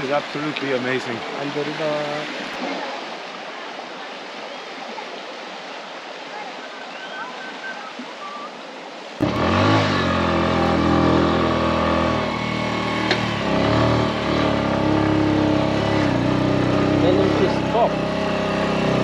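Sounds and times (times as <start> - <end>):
river rushing in flood: 0.0 - 19.0
motorcycle engine revving: 9.2 - 19.0.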